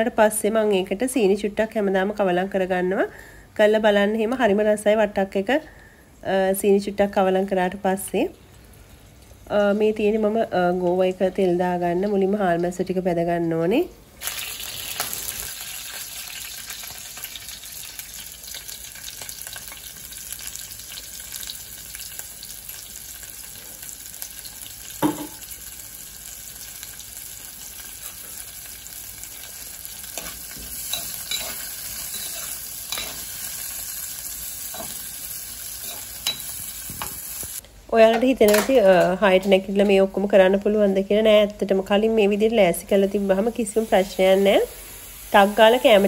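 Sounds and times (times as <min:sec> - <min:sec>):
fish sizzling in oil: 0:14.2 - 0:37.6, 0:42.9 - 0:46.0
spoon scraping a clay pot: 0:30.2 - 0:33.3.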